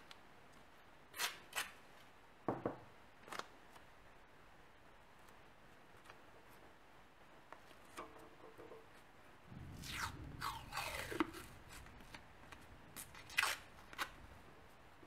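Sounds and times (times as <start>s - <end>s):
tape tearing: 1.1s - 1.8s, 12.5s - 14.2s
masking tape unrolling: 9.8s - 14.3s.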